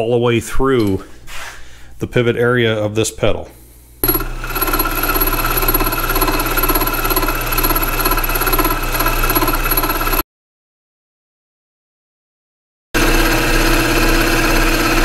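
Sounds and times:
milling machine running: 4.0s - 10.2s, 13.0s - 15.0s.

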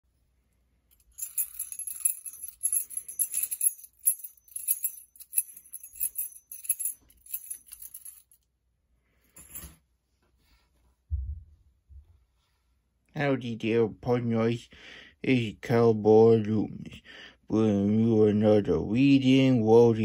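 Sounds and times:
small bells jingling: 1.0s - 8.4s, 9.4s - 9.7s.

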